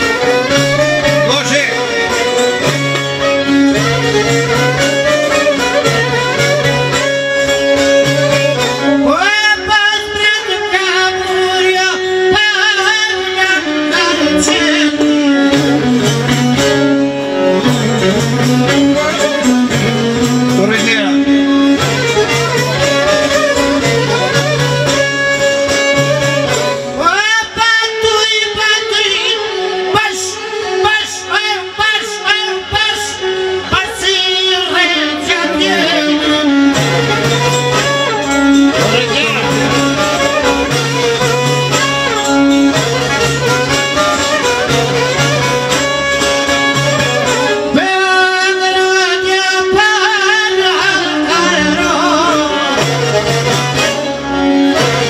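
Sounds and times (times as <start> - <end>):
long-necked lute: 0.0 - 55.0
man singing ornamented: 34.0 - 36.6.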